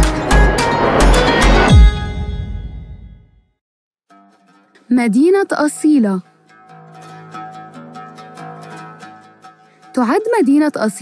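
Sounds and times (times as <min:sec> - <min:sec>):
music chord ringing out: 0:00.0 - 0:03.2.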